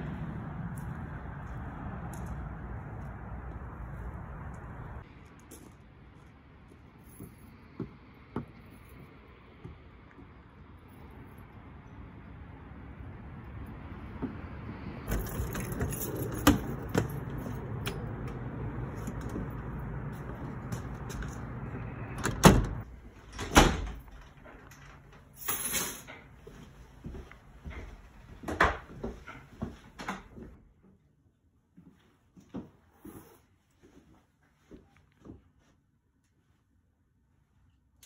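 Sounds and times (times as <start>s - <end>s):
steady low rumble: 0.0s - 5.2s, 10.8s - 24.9s.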